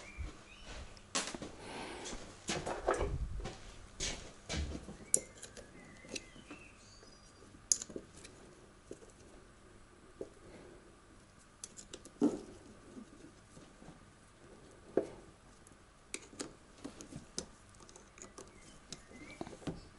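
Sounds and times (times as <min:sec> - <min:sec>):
faint bird chirps: 0:00.0 - 0:01.1, 0:05.0 - 0:07.6, 0:18.2 - 0:19.9
hands handling cables and tools: 0:11.6 - 0:13.7.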